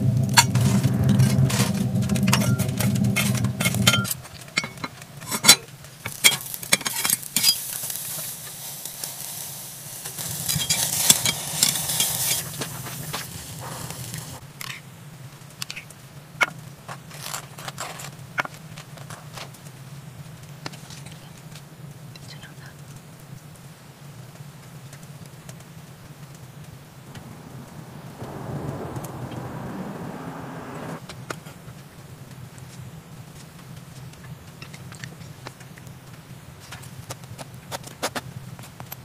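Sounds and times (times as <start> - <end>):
low steady hum: 0.0 - 5.1, 27.0 - 31.0
burger patty sizzling on grill: 6.0 - 14.4.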